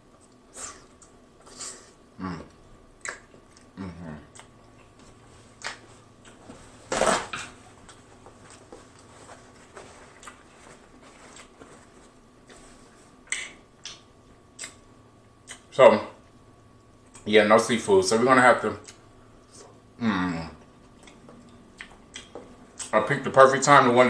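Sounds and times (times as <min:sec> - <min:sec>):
chewing and lip smacking: 0:02.5 - 0:06.4, 0:10.1 - 0:10.5, 0:13.2 - 0:15.7, 0:20.6 - 0:23.0
wet mouth clicks: 0:03.0 - 0:03.7, 0:13.3 - 0:14.0, 0:14.6 - 0:14.8.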